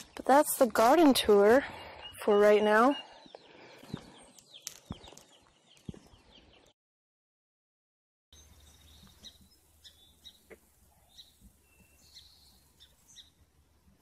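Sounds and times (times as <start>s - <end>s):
high bird chirps: 8.3s - 13.4s.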